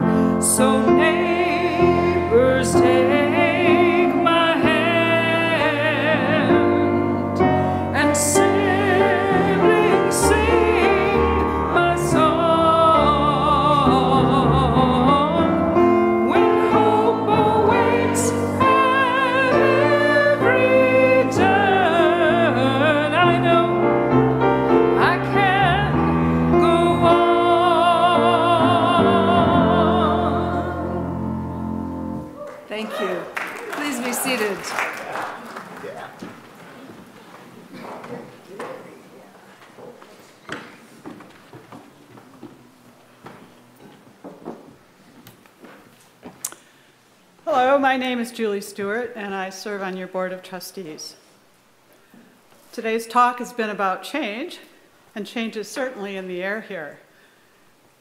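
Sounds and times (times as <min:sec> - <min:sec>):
piano accompaniment: 0:00.0 - 0:32.5
voices singing with vibrato: 0:00.4 - 0:24.2, 0:24.8 - 0:31.6.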